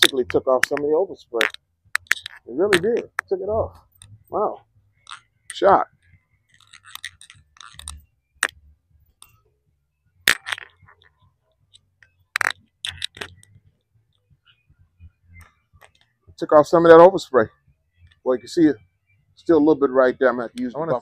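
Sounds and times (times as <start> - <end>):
sharp clicks: 0.0 - 4.2, 11.7 - 13.6.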